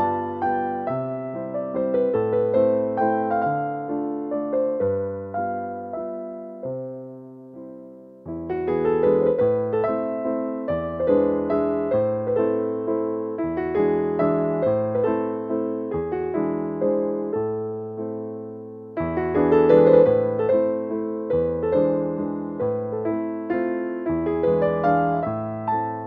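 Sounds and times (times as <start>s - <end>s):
gentle piano-like keyboard: 0.0s - 26.0s.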